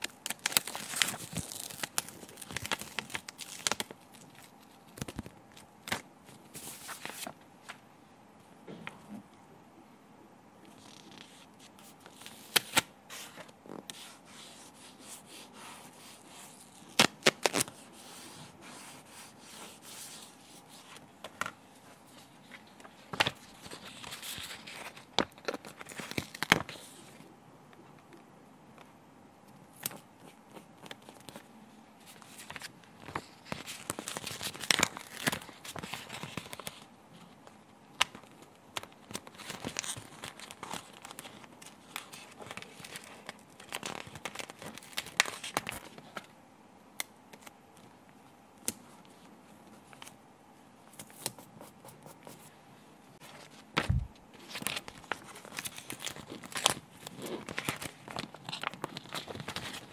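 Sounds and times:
sticker sheet crinkling: 0.0 - 7.3, 38.0 - 46.2, 53.2 - 59.9.

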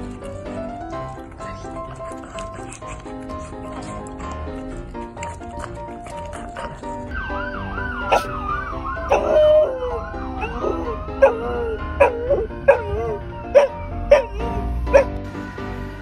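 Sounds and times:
background music: 0.0 - 16.0
emergency siren wailing: 7.1 - 13.4
dog howling: 8.0 - 15.1.

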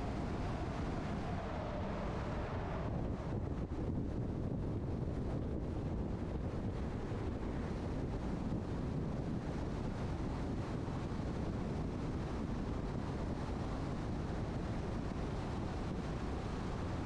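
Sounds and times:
car road and wind noise: 0.0 - 17.0.

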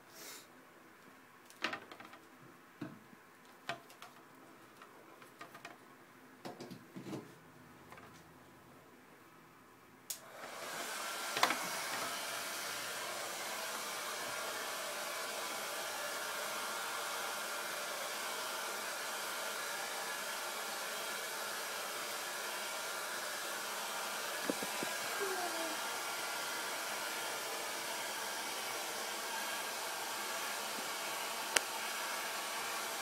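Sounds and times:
electric blower rushing: 10.3 - 33.0.

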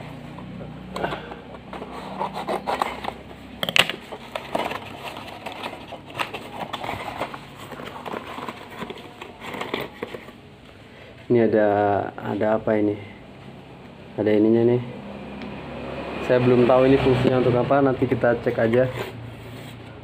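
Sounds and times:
cardboard and tape tearing: 1.0 - 10.4.

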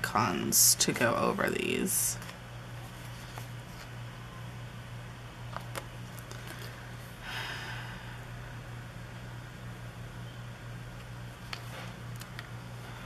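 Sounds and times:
steady low hum: 0.0 - 13.0
paper rustling: 2.2 - 3.9.

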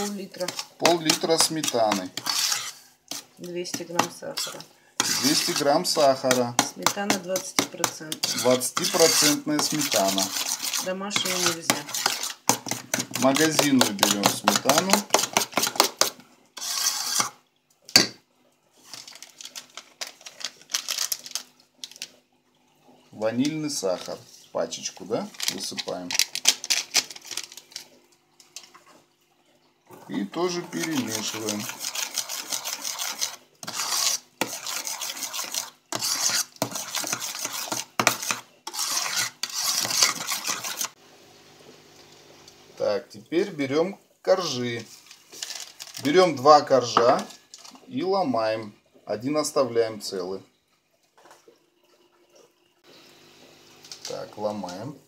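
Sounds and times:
spoon clinking and scraping bowl: 0.3 - 17.4, 30.1 - 41.0.

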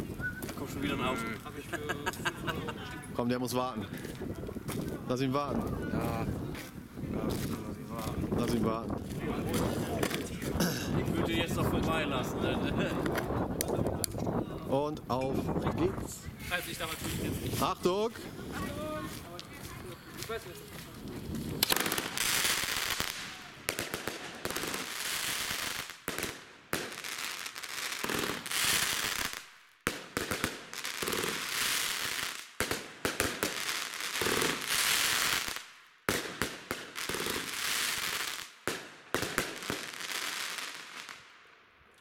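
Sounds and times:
firework shots: 9.1 - 11.0, 21.4 - 41.3
dense firework crackling: 16.5 - 41.4.

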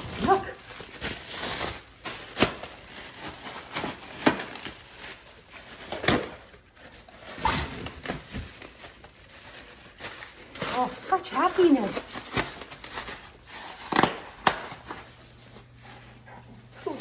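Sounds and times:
plastic packing popping: 0.0 - 6.6, 13.8 - 15.0
plastic crinkling: 0.0 - 17.0.

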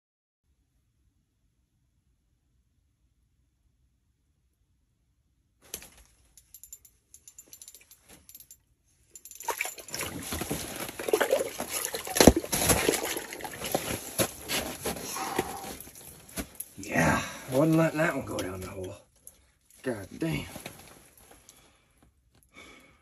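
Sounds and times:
water splashing and sloshing: 9.2 - 16.6.

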